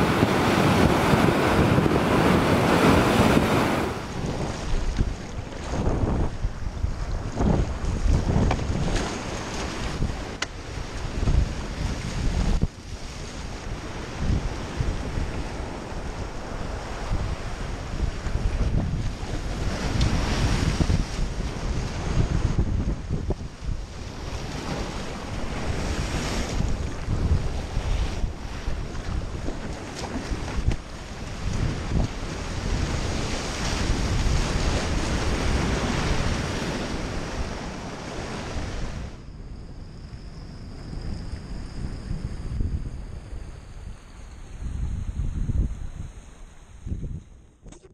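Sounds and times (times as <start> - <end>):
churning white water: 0.0 - 6.0
surf breaking over rocks: 0.0 - 6.1
sea surf breaking over rocks: 0.0 - 39.2
wind buffeting microphone: 0.0 - 47.9.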